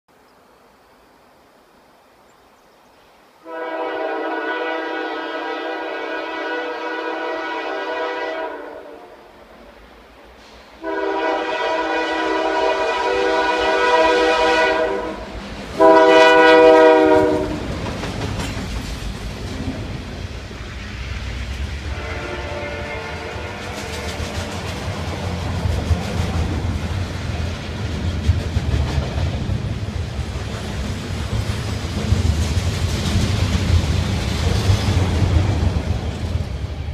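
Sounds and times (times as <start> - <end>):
locomotive air horn: 3.4 - 9.3, 10.8 - 17.7, 21.9 - 24.1
train rumbling past: 3.4 - 36.9.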